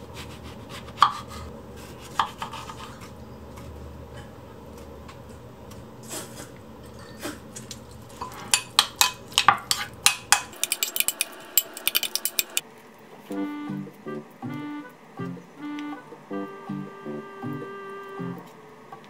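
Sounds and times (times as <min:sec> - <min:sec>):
fork clinking against ceramic bowl: 0:08.2 - 0:12.6.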